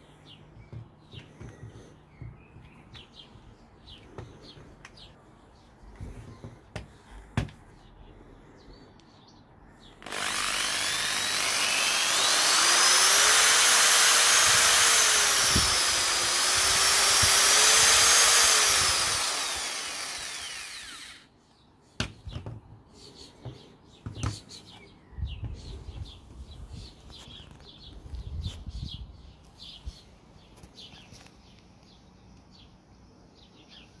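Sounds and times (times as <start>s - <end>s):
electric drill whining: 10.0s - 21.3s.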